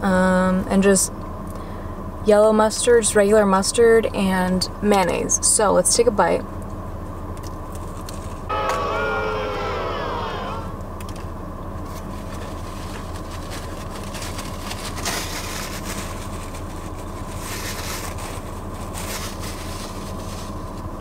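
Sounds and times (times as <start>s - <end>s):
car idling hum: 8.1s - 21.0s
rustling: 11.9s - 20.9s.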